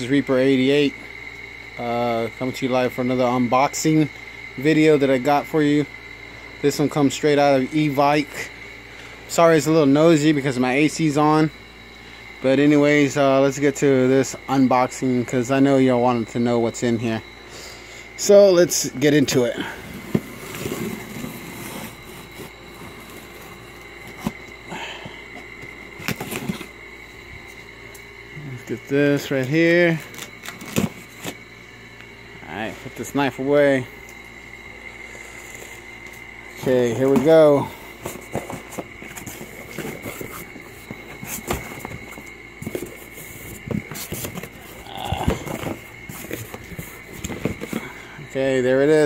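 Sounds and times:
air conditioner hum: 0.0s - 49.0s
steady high whine: 0.0s - 49.0s
cardboard scraping and rustling: 19.3s - 24.6s, 25.5s - 26.8s, 30.0s - 31.4s, 36.5s - 48.0s
knife slitting cardboard box: 20.0s - 24.4s.

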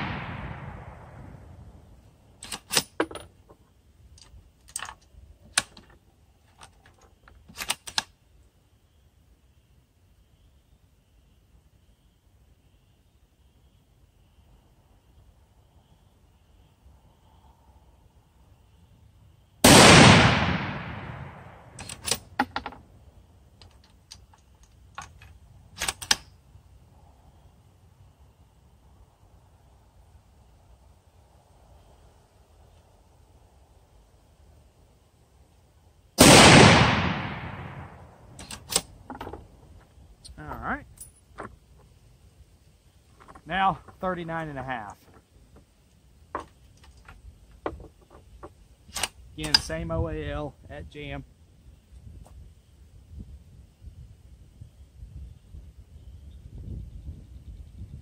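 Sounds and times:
gunshot echo: 0.0s - 1.4s, 19.6s - 21.8s, 36.2s - 38.0s
rifle shot: 0.0s - 1.4s, 19.6s - 22.4s, 36.2s - 38.9s
rifle bolt clicking and clacking: 7.5s - 8.1s, 21.8s - 22.8s, 23.6s - 26.3s, 38.4s - 39.4s.

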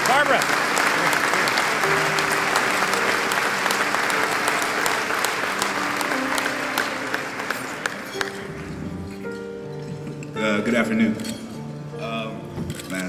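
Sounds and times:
audience applauding: 0.0s - 9.4s.

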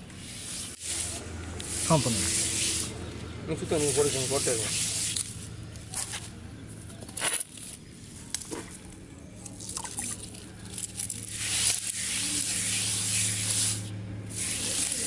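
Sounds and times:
stiff brush scrubbing wet paste: 0.2s - 5.4s, 9.6s - 15.0s.

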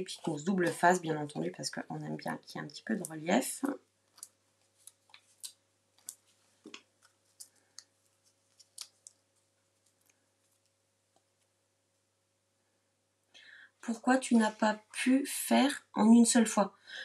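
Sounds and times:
small clicks of adhesive backing: 4.1s - 7.9s, 8.5s - 9.2s
light rustles of card: 4.1s - 10.7s.

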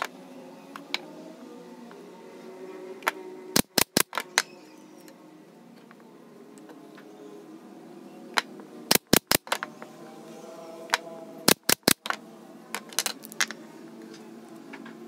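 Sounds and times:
nail gun shots: 3.6s - 4.2s, 8.9s - 9.6s, 11.5s - 12.2s.

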